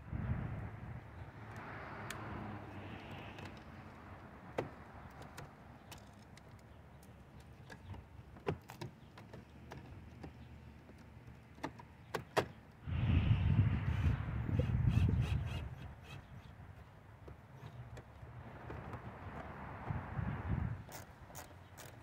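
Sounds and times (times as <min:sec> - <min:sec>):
steady rushing noise: 0:12.8 - 0:14.5.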